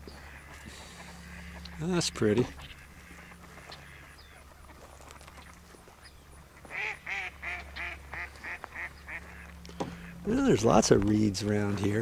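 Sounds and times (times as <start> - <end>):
duck quacking: 0.2 - 4.8, 6.6 - 10.3.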